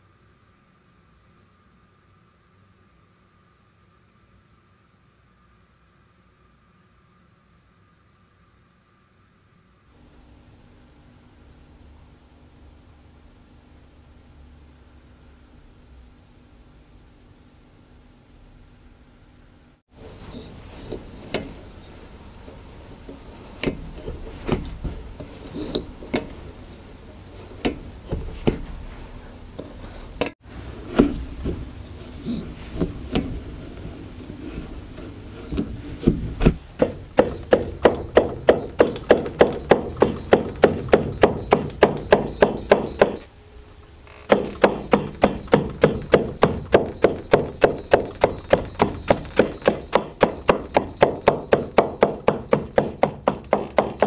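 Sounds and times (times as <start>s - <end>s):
beater comb beating: 36.6s - 43.3s, 44.3s - 54.0s
hand tool clicks and taps: 44.3s - 54.0s.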